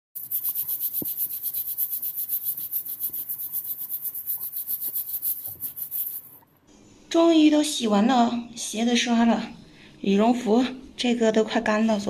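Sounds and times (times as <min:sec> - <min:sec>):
stiff brush scrubbing a shoe: 0:00.2 - 0:06.4.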